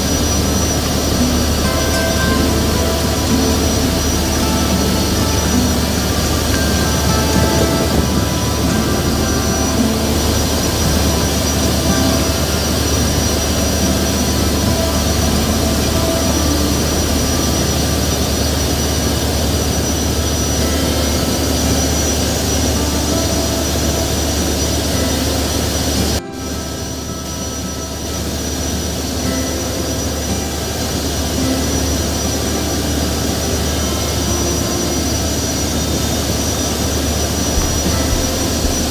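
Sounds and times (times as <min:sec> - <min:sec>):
wind buffeting microphone: 0:00.0 - 0:20.6, 0:35.2 - 0:38.9
boat engine rumble: 0:00.0 - 0:38.9.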